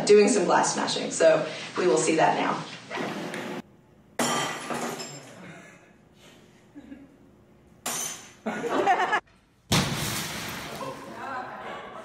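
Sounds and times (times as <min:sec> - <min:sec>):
glass pane breaking: 0:09.7 - 0:10.8.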